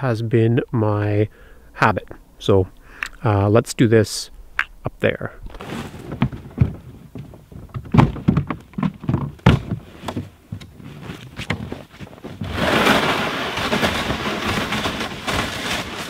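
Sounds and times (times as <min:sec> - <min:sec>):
plastic tote knocks and thunks: 0:05.5 - 0:13.0
plastic sled scraping over snow: 0:05.5 - 0:16.0.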